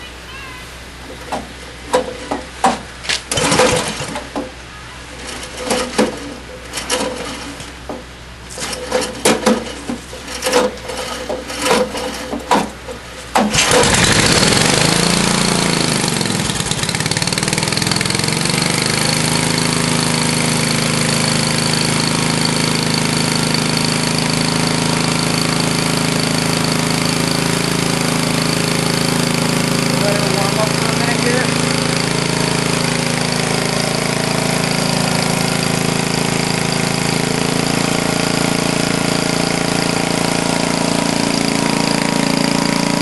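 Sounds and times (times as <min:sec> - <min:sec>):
starter clicks and knocks: 0:01.1 - 0:04.6, 0:05.2 - 0:14.1
small gasoline engine running: 0:03.3 - 0:04.4, 0:08.6 - 0:12.6, 0:13.4 - 0:43.0.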